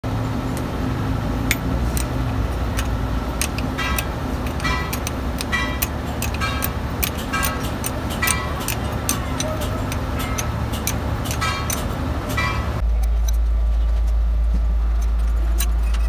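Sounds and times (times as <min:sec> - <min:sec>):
low rumble: 0:00.0 - 0:16.0
high metallic ringing: 0:00.4 - 0:12.8
spanner clicking on metal nuts: 0:01.3 - 0:13.4, 0:15.0 - 0:16.0.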